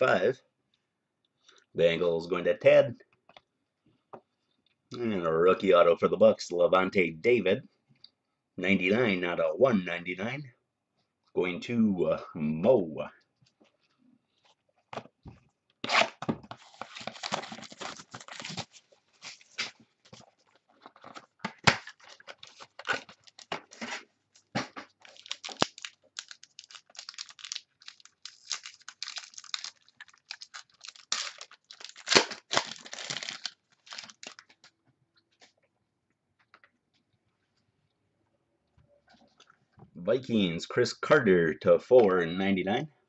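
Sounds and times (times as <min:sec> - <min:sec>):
plastic wrapping tearing and crinkling: 0:15.9 - 0:19.8, 0:21.5 - 0:34.7.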